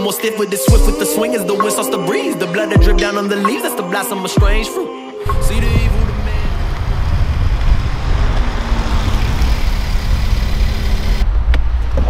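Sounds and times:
car engine and tyres: 5.2s - 12.0s
heavy low rumble: 5.2s - 12.0s.

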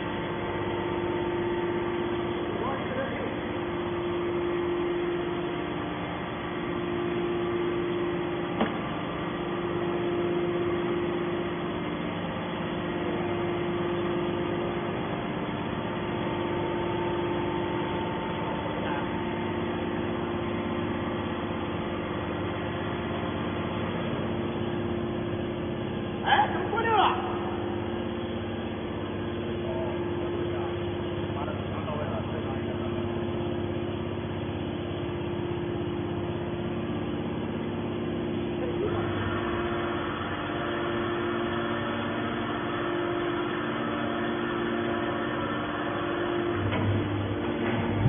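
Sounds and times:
hydraulic power pack humming: 0.0s - 48.0s.

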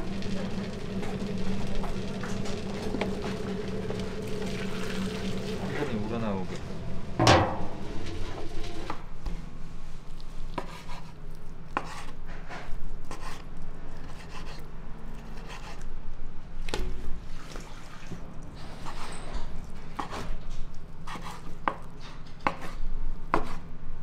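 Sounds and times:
knife chopping on cutting board: 21.1s - 23.6s.

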